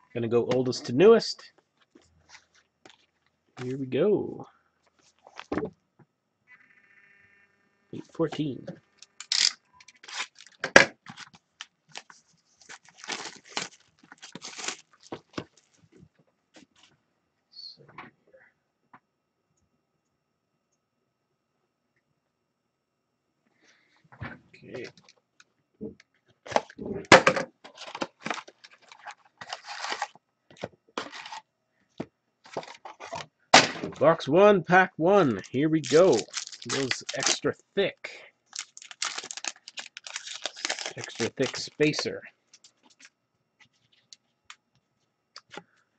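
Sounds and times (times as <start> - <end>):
plastic wrap crinkling: 9.0 - 15.9, 27.7 - 30.2, 35.3 - 37.4, 38.5 - 43.1
plastic wrap ripping: 9.2 - 15.8, 28.2 - 30.2, 35.8 - 37.4, 38.5 - 42.0
cardboard box being torn open: 12.8 - 14.9, 29.4 - 30.1, 38.8 - 41.6.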